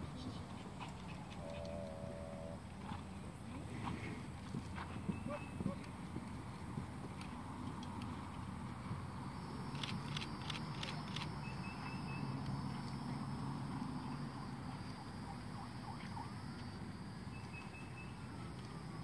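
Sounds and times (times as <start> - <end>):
high insect drone: 6.5 - 19.0
sharp clicks: 9.6 - 12.6
bird chirp: 11.1 - 12.4, 17.3 - 18.4.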